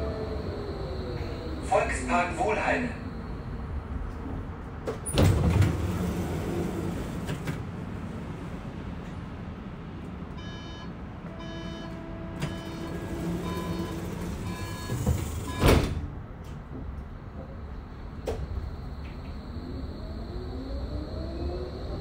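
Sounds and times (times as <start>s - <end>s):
tram running rumble: 0.0s - 22.0s
electric drive whine: 18.2s - 22.0s.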